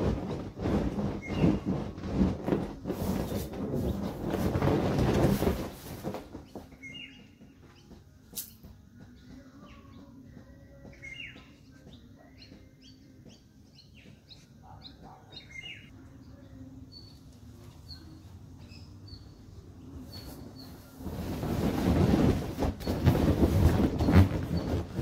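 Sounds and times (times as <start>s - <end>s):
inflatable vinyl toy rubbing: 0.0s - 7.2s, 20.1s - 25.0s
birds chirping: 6.4s - 8.2s, 9.0s - 21.0s.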